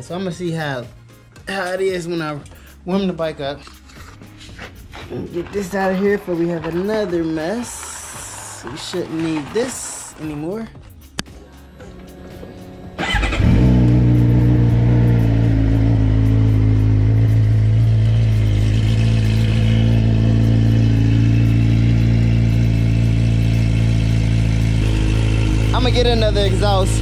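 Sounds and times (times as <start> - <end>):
motorcycle engine starting and idling: 12.6 - 27.0.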